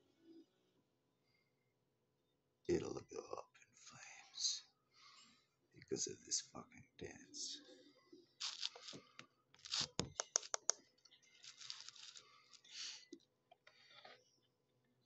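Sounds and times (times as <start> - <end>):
sharp clicks: 10.0 - 10.8.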